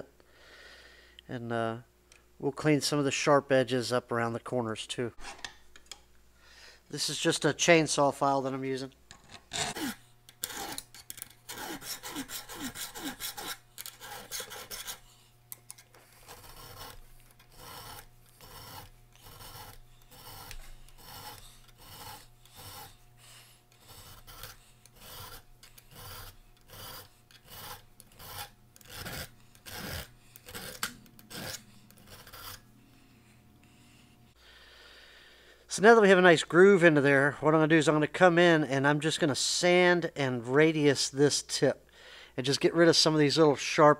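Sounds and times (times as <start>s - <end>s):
file rasping on steel: 9.5s - 15.1s, 16.2s - 23.0s, 23.7s - 32.6s.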